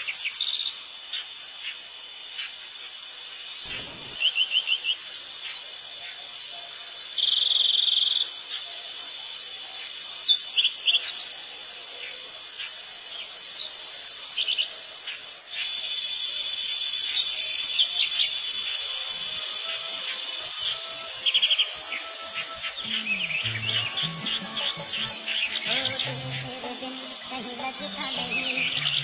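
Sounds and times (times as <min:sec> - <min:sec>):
short insect chirps: 0:03.4 - 0:05.7, 0:15.5 - 0:29.0
insects trilling: 0:15.5 - 0:29.0.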